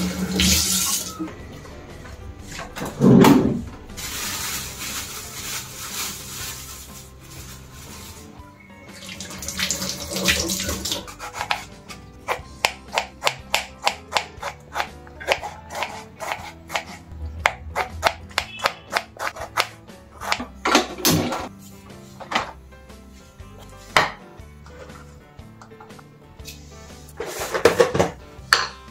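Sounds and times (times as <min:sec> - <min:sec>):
tap water running into sink: 0:00.0 - 0:01.1, 0:09.0 - 0:11.0
background music: 0:00.0 - 0:28.9
knife slicing on cutting board: 0:11.0 - 0:11.7.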